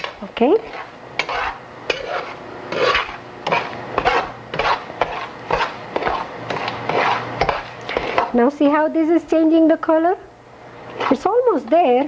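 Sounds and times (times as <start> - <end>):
metal spoon scraping frying pan: 0.0 - 8.3.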